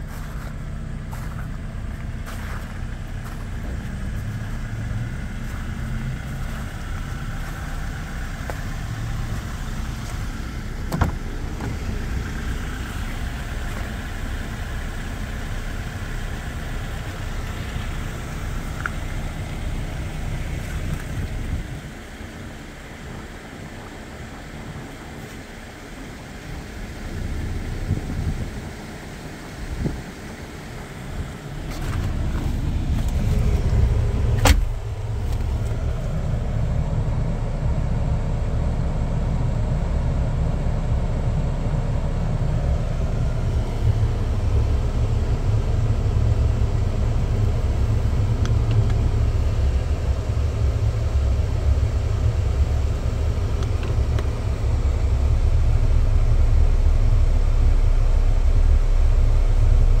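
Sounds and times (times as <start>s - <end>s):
car engine idling: 0.0s - 60.0s.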